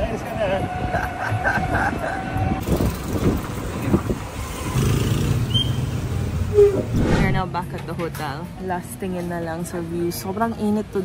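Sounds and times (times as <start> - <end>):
road rumble: 0.0 - 11.0
wind: 0.0 - 11.0
vehicle rattles and knocks: 2.6 - 5.4.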